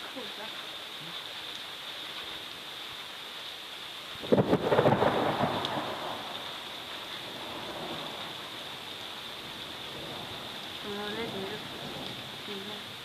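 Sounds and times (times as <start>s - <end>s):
steady rain: 0.0s - 13.0s
thunder crack and rumble: 4.2s - 6.4s.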